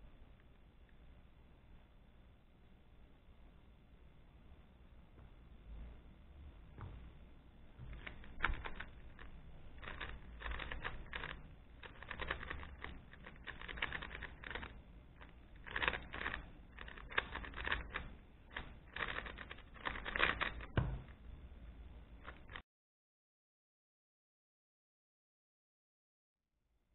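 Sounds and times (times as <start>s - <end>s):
plastic puzzle cube clacking: 7.9s - 21.2s, 22.2s - 22.6s.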